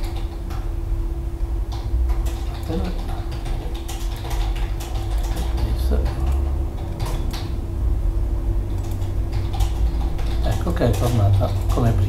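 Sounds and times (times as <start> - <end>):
low room hum: 0.0 - 12.0
computer mouse clicks: 8.7 - 11.9.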